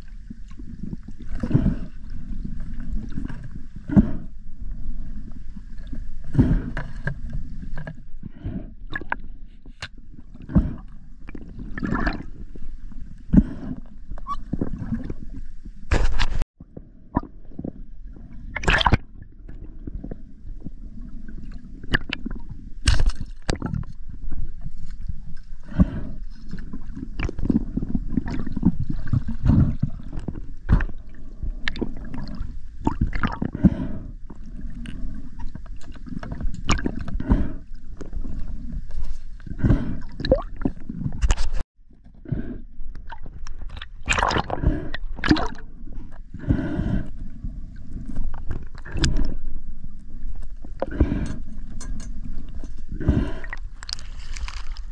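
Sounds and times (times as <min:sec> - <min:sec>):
water gurgling and sloshing: 0:00.0 - 0:54.9
clicks and crackles: 0:53.4 - 0:54.9.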